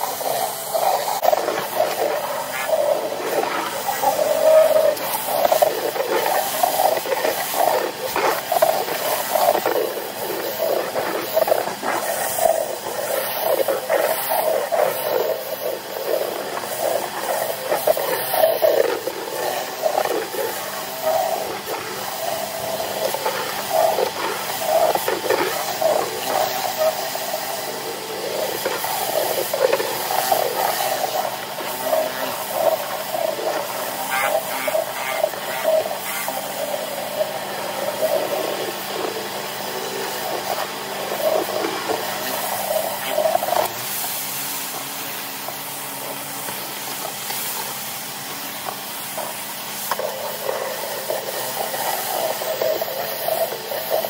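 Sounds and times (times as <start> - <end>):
pressure washer spraying paving: 0.0 - 54.0.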